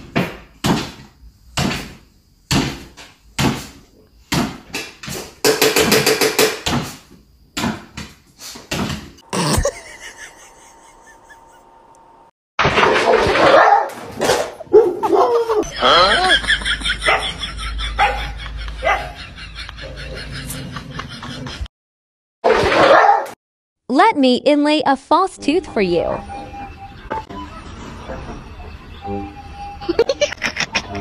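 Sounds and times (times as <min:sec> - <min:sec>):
dog barking: 0:13.0 - 0:15.6, 0:17.0 - 0:17.4, 0:18.0 - 0:19.2, 0:22.5 - 0:23.4.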